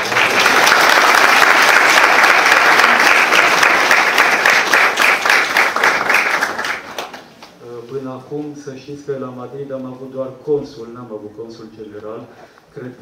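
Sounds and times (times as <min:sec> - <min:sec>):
audience applauding: 0:00.0 - 0:07.5.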